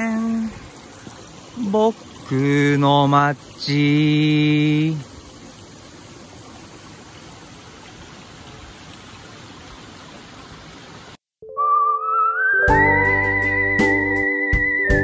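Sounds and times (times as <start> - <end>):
mountain stream rushing: 0.0 - 11.2.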